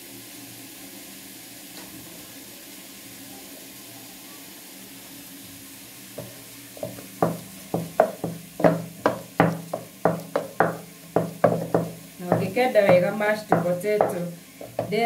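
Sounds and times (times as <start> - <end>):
potatoes being mashed in a pot: 6.2 - 15.0.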